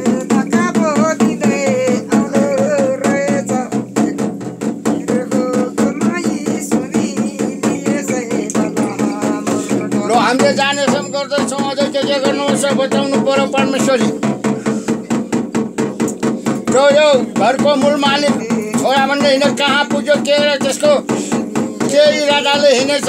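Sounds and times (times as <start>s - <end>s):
woman chanting: 0.0s - 12.6s, 17.8s - 19.4s
frame drum beating: 0.0s - 23.0s.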